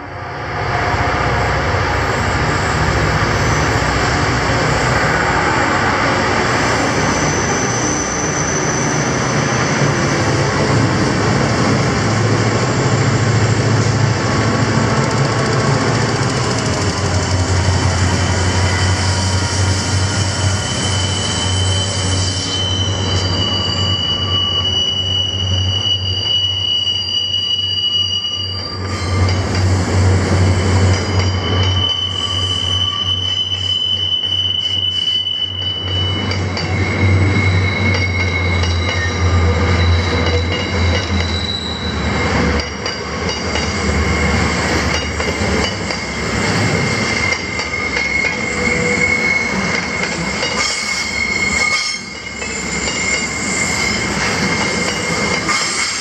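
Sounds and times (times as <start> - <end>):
low diesel locomotive drone: 0.0 - 56.0
train wagons rolling past: 0.5 - 27.8, 28.4 - 56.0
high-pitched wheel squeals: 2.6 - 10.9, 15.1 - 29.8, 30.4 - 56.0.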